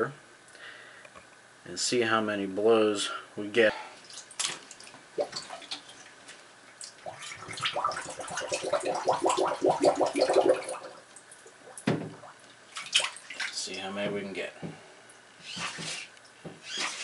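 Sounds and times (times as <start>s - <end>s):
bathwater splashing: 4.0s - 13.6s.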